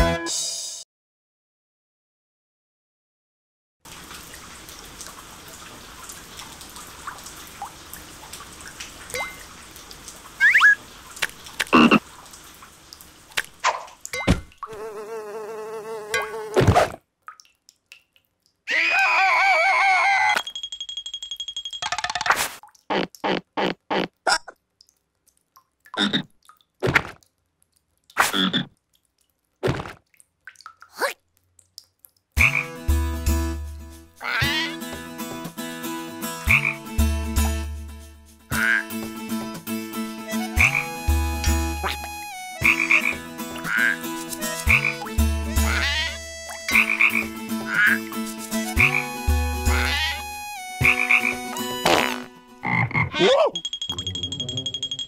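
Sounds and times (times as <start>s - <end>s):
cartoon frog croaking: 11.7s - 12.0s, 34.2s - 34.8s, 38.5s - 38.9s, 41.8s - 44.0s, 44.7s - 48.0s, 49.6s - 53.6s.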